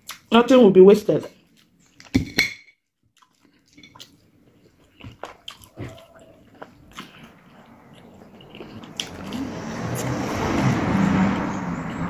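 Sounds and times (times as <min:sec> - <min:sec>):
chewing fish head and bones: 0:03.1 - 0:10.7.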